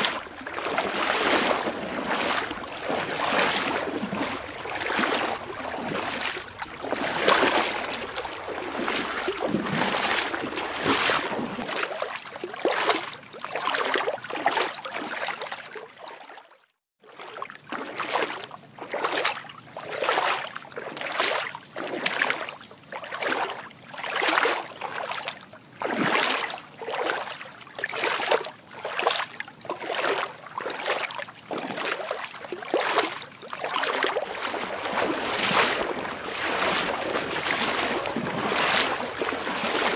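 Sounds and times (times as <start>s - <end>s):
water sloshing in surges: 0.0s - 39.9s.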